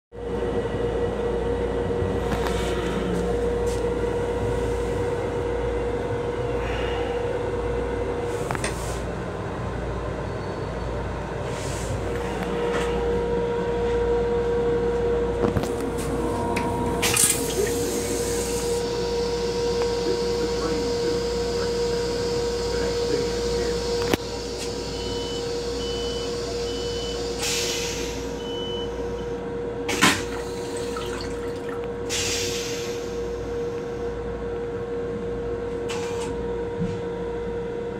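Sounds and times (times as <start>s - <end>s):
train car hum: 0.1s - 37.9s
moving train rumble: 0.2s - 28.4s
toilet flushing: 16.2s - 18.9s, 29.9s - 33.1s.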